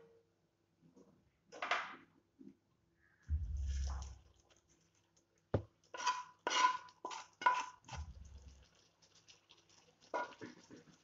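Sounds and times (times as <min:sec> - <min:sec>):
spatula scraping metal pan: 0:06.0 - 0:08.0.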